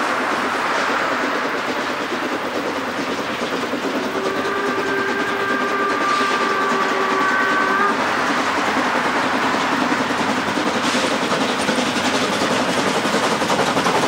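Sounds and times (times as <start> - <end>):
steam train rumbling: 0.0 - 14.0
steam whistle blast: 4.0 - 8.7.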